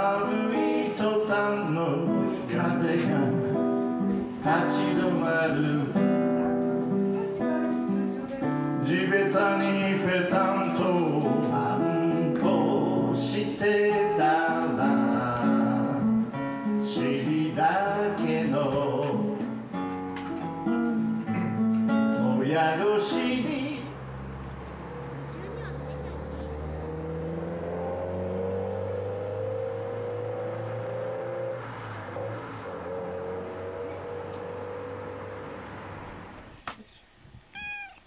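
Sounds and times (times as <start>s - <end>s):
man singing: 0.0s - 3.7s, 4.3s - 6.4s, 7.4s - 19.7s, 22.1s - 24.0s
acoustic guitar: 0.0s - 26.8s.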